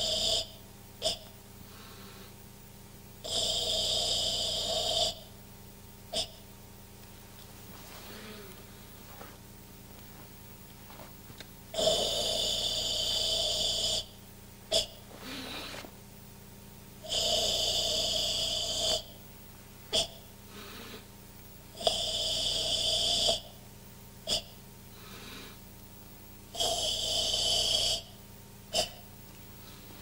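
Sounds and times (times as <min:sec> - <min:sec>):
forceful throat breathing: 0:00.0 - 0:02.5, 0:03.2 - 0:05.4, 0:06.1 - 0:06.5, 0:07.6 - 0:09.5, 0:11.7 - 0:16.0, 0:17.0 - 0:19.2, 0:19.9 - 0:23.6, 0:24.2 - 0:25.7, 0:26.5 - 0:30.0.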